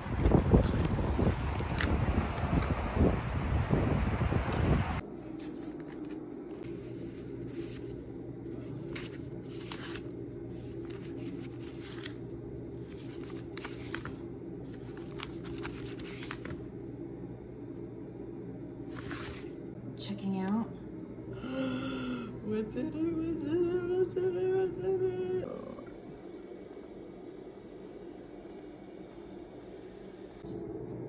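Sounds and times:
steady low hum: 0:00.0 - 0:31.0
paper envelopes rustling: 0:05.2 - 0:16.7, 0:18.9 - 0:19.6.

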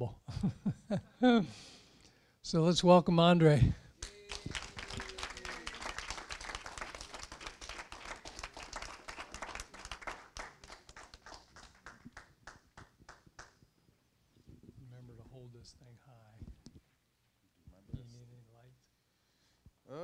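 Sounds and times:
audience applauding: 0:04.0 - 0:13.6.

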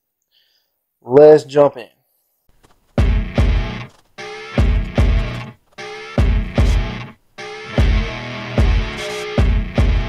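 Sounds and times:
rock music with heavy drums: 0:03.0 - 0:10.0.

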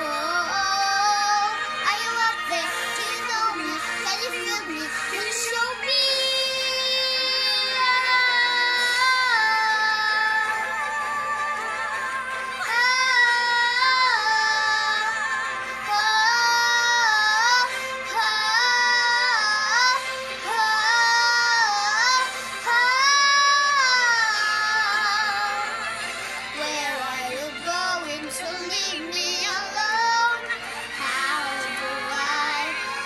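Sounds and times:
girl singing wordless vocalise: 0:12.6 - 0:25.8, 0:31.0 - 0:33.0.

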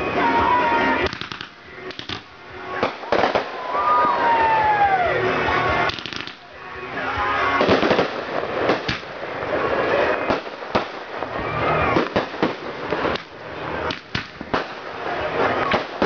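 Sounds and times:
fireworks crackle: 0:00.0 - 0:16.0
fireworks bangs and pops: 0:01.0 - 0:04.5, 0:05.8 - 0:06.6, 0:07.5 - 0:16.0.

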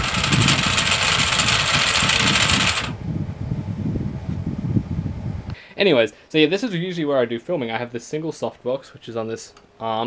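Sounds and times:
electric motor and gears whirring: 0:00.0 - 0:03.0
low rumble: 0:00.0 - 0:05.6.

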